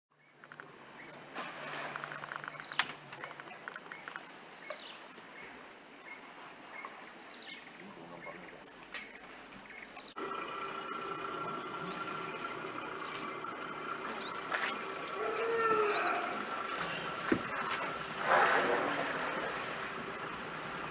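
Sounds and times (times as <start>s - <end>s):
insects droning high-pitched: 0.2s - 20.9s
short insect chirps: 0.2s - 20.9s
rapid ticking calls: 8.3s - 18.2s, 19.2s - 20.9s.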